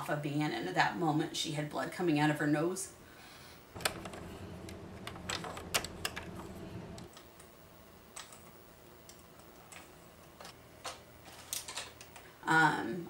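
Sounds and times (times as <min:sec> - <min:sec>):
low steady hum: 0:03.8 - 0:09.9.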